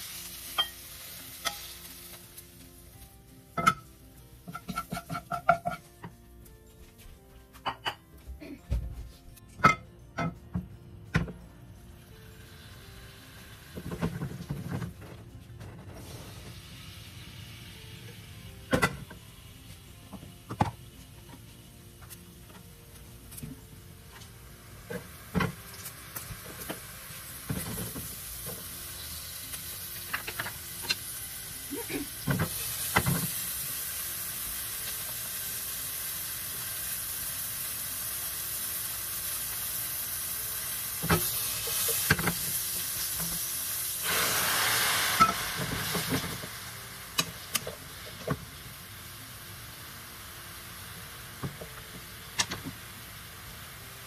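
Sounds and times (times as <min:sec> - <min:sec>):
butter and oil sizzling in pan: 0:00.0 - 0:06.1, 0:11.1 - 0:15.1, 0:15.8 - 0:54.0
utensils clinking against pan: 0:04.5 - 0:05.9.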